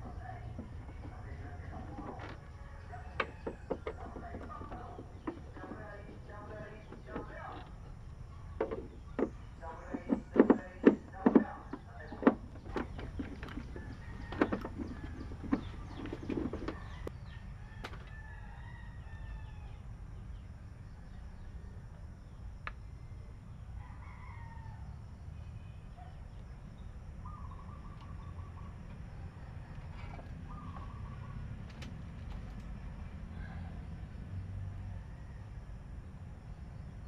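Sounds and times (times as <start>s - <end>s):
chicken calls: 0.0s - 17.1s
sharp clicks and knocks: 0.0s - 17.1s
steady low hum: 0.0s - 17.6s
rooster crowing: 1.7s - 5.3s, 13.6s - 19.8s, 23.8s - 25.0s.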